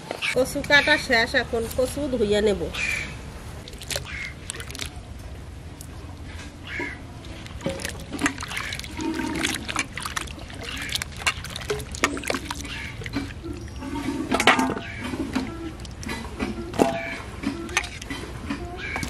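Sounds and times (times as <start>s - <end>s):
hands splashing in bowl of water: 3.6s - 5.0s, 6.8s - 13.4s.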